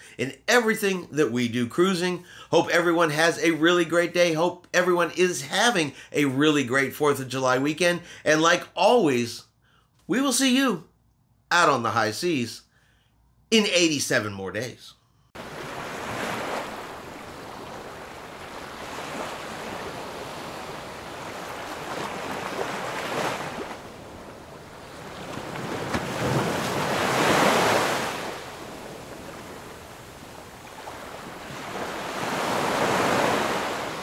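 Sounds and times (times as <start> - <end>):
small waves washing onto sand: 15.4 - 34.0.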